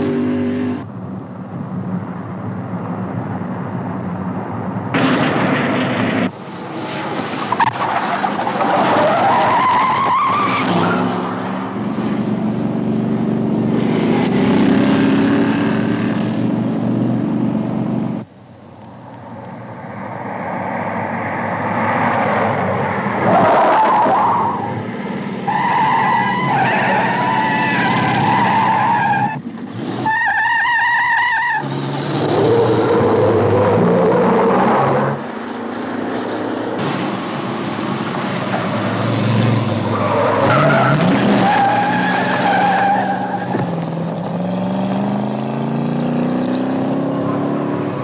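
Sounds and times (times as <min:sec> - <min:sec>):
car engines revving hard: 0:00.0 - 0:00.9, 0:04.9 - 0:18.3, 0:31.4 - 0:48.0
tyres squealing: 0:39.9 - 0:43.8.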